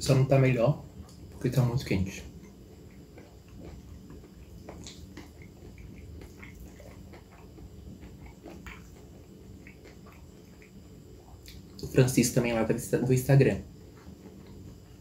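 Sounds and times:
close chewing of soft food: 0.9s - 12.6s, 13.6s - 15.0s
wet mouth clicks: 2.9s - 10.8s, 11.4s - 11.8s.

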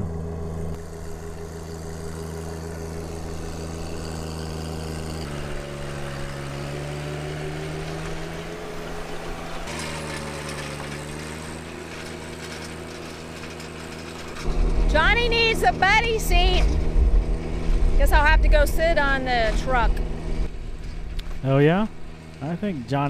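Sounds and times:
tractor diesel engine running: 0.0s - 23.0s.

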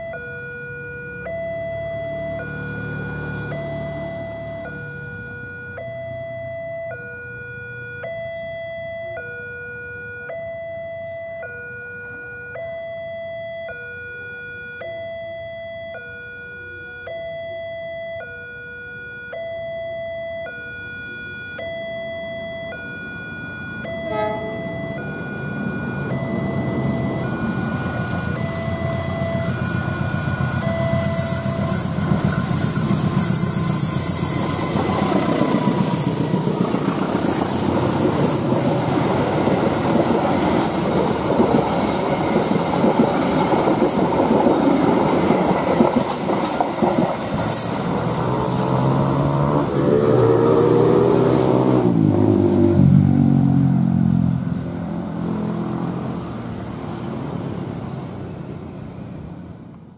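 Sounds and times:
level crossing two-tone alarm: 0.0s - 36.7s
train rumble: 24.0s - 50.5s.

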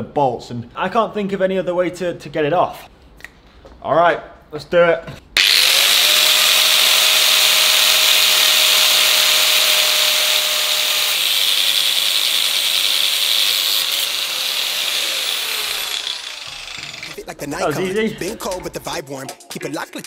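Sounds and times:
angle grinder motor whine: 5.4s - 17.2s.

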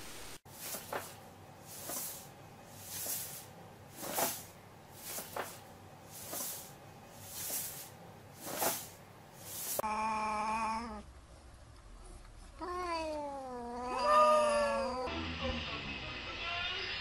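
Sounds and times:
cat hissing breaths: 1.6s - 5.4s, 6.1s - 9.8s.

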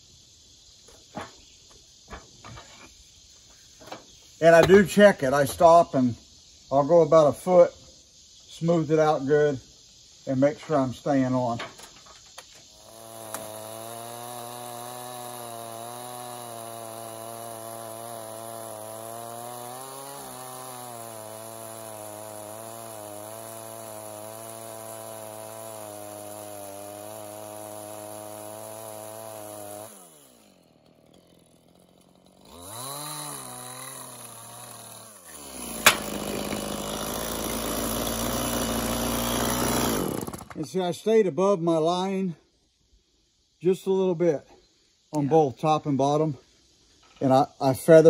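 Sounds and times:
chainsaw cutting log: 3.8s - 5.8s, 12.0s - 40.7s.

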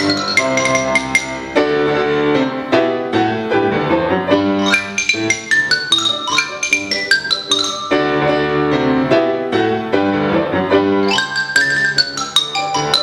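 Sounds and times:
marimba: 0.0s - 1.9s, 4.6s - 8.4s, 11.0s - 13.0s
piano chords: 0.0s - 13.0s.

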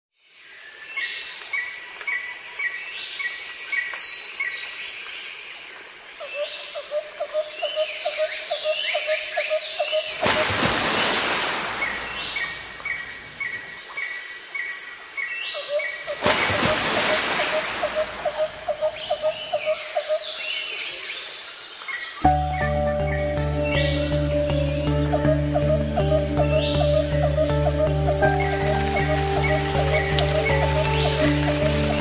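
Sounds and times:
high insect drone: 5.2s - 20.4s, 21.0s - 32.0s
wild birds calling: 6.3s - 21.1s, 22.2s - 32.0s.

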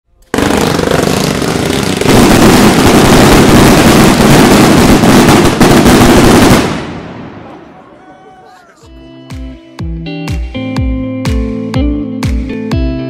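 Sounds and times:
fireworks bangs and crackle: 0.3s - 7.6s.

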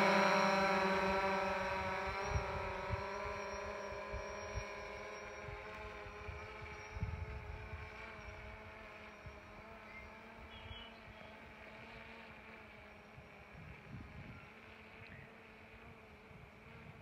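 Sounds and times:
drone propellers buzzing: 0.0s - 17.0s.

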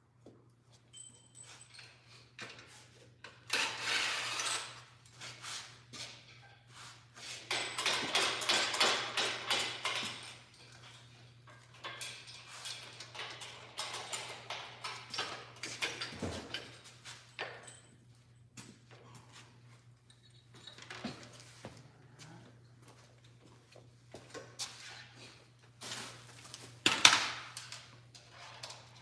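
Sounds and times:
metal parts and tools clinking: 0.8s - 5.2s, 7.3s - 18.1s.

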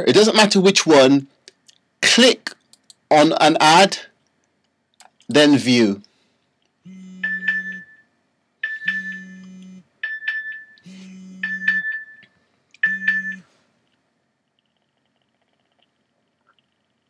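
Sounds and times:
low steady hum: 0.0s - 17.0s
electronic ringing tone with clicks: 6.9s - 13.5s.

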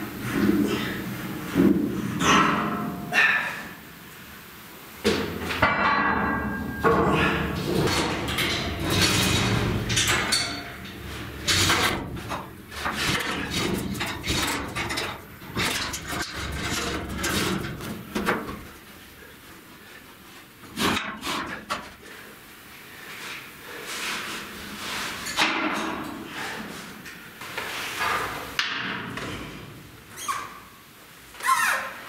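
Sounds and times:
metal clanks and scrapes: 5.5s - 18.8s, 20.6s - 22.1s.

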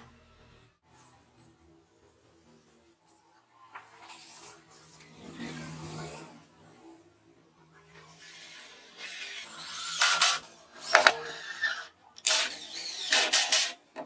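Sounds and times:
cordless drill driving screws: 8.3s - 13.8s.

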